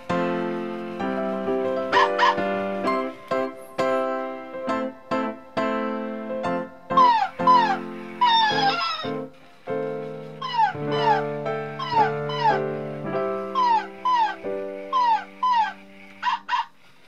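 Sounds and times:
background music with held chords: 0.0s - 16.3s
toy puppy yipping: 7.0s - 9.3s, 10.4s - 12.8s, 13.4s - 16.7s.

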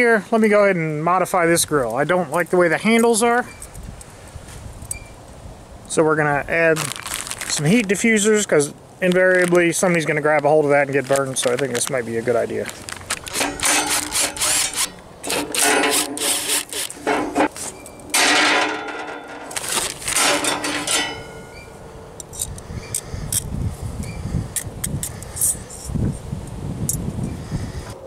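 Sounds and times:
metal grate and springs clanking: 13.2s - 22.5s.

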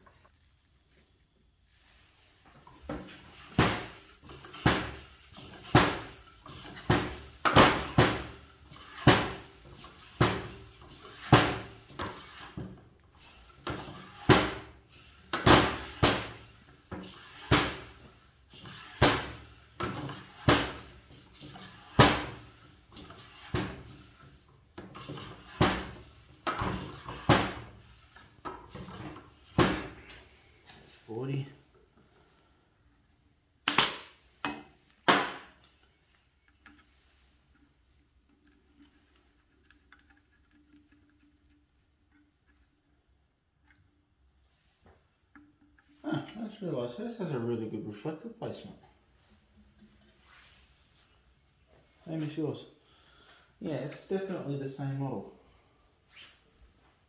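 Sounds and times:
hand pump strokes: 3.1s - 30.1s.

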